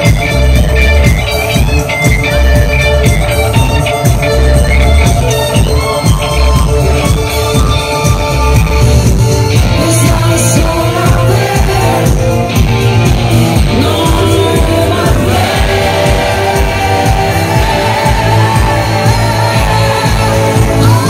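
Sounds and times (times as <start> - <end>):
bass: 0.0 - 21.0
electric guitar: 0.0 - 21.0
live pop music: 0.0 - 21.0
women singing: 9.7 - 12.3, 13.6 - 21.0.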